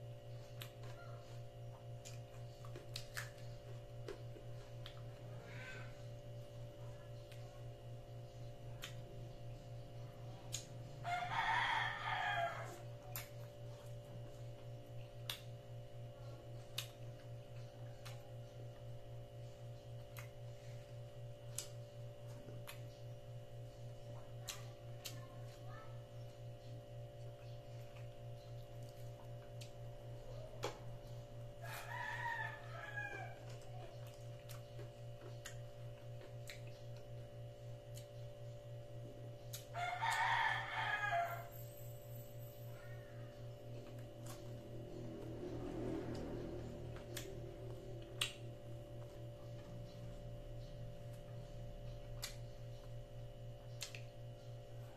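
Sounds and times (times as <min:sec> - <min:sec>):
low pulsing hum: 0:00.0 - 0:54.9
chewing with lip smacks: 0:00.4 - 0:05.4, 0:08.5 - 0:09.6, 0:12.7 - 0:23.1, 0:26.2 - 0:31.9, 0:33.3 - 0:40.2, 0:43.7 - 0:54.9
mouth clicks of chewing: 0:02.0 - 0:04.2, 0:08.7 - 0:09.1, 0:14.8 - 0:15.6, 0:16.6 - 0:18.3, 0:19.9 - 0:20.4, 0:33.4 - 0:37.1, 0:37.9 - 0:38.2, 0:46.9 - 0:49.1, 0:51.1 - 0:53.0, 0:53.6 - 0:54.2
rooster crowing: 0:11.0 - 0:12.9, 0:31.6 - 0:33.6, 0:39.7 - 0:41.7.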